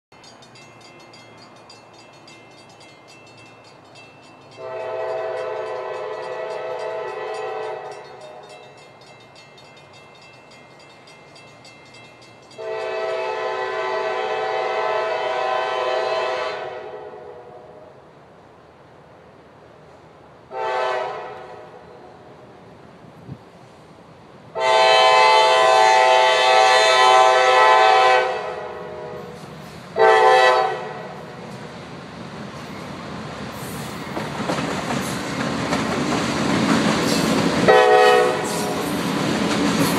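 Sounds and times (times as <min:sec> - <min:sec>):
faint train rumble: 0:00.1 - 0:39.9
train air horn blasts: 0:04.5 - 0:08.6, 0:12.6 - 0:18.0, 0:20.5 - 0:22.3, 0:24.5 - 0:31.4, 0:37.7 - 0:38.9.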